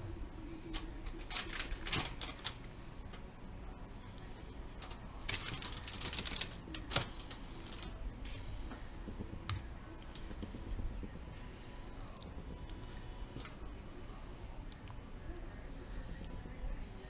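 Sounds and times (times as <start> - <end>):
aluminium foil crinkling: 0.7 - 3.2, 4.7 - 8.0.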